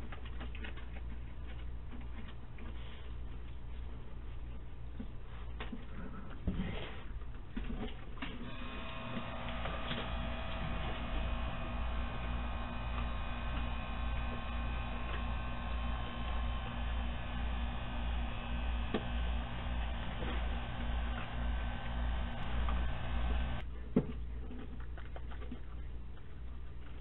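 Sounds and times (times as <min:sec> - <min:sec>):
electrical hum: 0:00.0 - 0:24.3
thin steady tones: 0:08.5 - 0:23.6.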